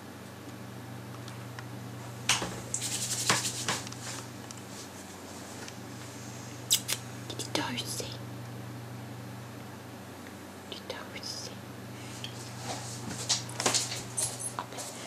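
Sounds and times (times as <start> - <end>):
low hum: 5.6 - 14.8
sharp click: 6.7 - 7.0
dog rustling: 12.4 - 15.0.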